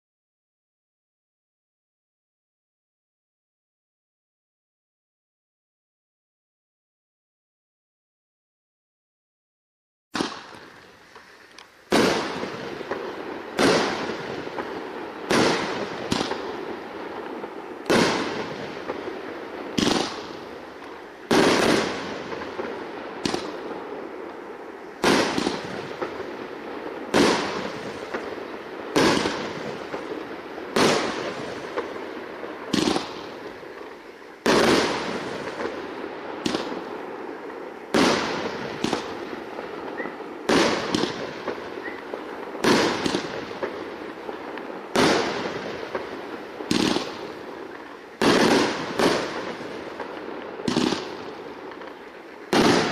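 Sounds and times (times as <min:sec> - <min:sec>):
firework bangs with hiss: 0:10.1 - 0:52.9.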